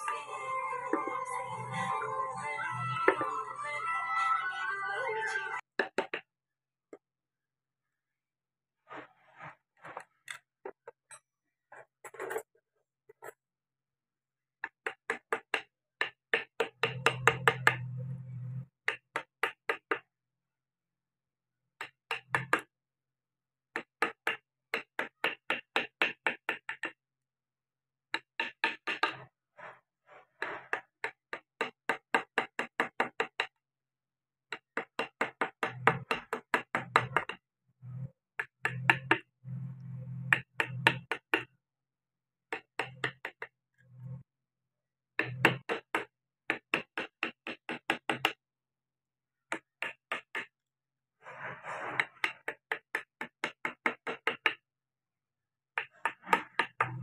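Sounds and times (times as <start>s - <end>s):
mallet tapping chisel into wood: 38.4s - 39.3s, 40.3s - 41.5s, 45.2s - 48.4s.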